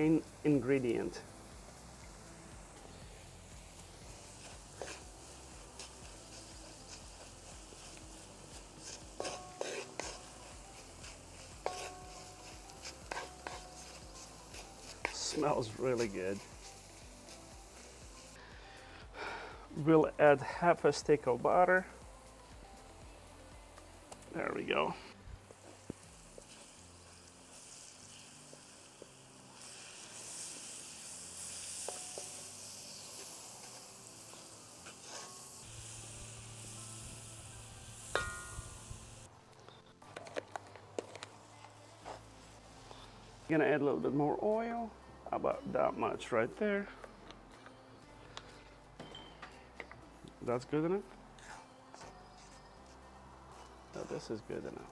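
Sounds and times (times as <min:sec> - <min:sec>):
food sizzling in oil: 0:00.0 - 0:19.3, 0:24.9 - 0:39.3
wooden spoon stirring: 0:04.4 - 0:07.3, 0:08.8 - 0:15.4.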